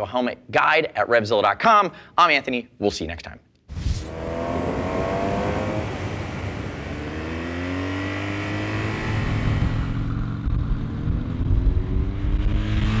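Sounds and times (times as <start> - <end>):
motorcycle engines accelerating: 4.0 - 13.0.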